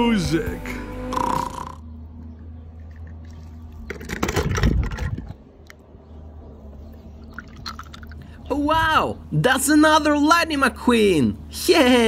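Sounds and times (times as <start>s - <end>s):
water splashing in a tub: 6.8s - 8.4s.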